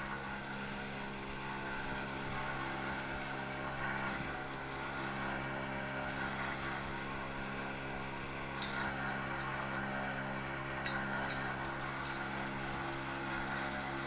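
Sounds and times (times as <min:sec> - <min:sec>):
ski lift machinery hum: 0:00.0 - 0:14.0.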